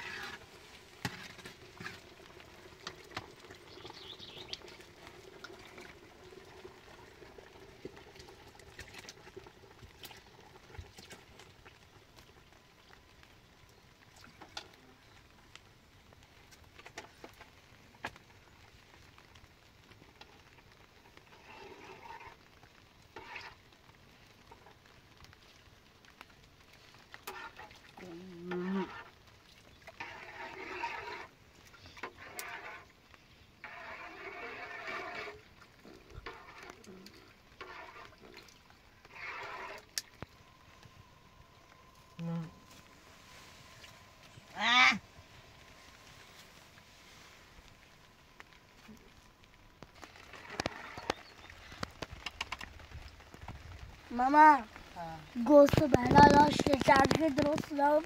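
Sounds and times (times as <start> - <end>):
metal spoon scraping a pot: 33.6 - 35.4
faint clicks: 49.8 - 53.6.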